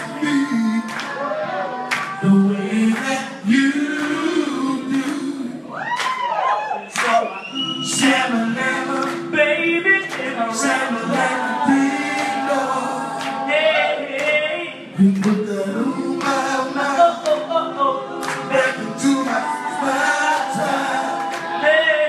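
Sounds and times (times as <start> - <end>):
voices singing in harmony: 0.0 - 22.0.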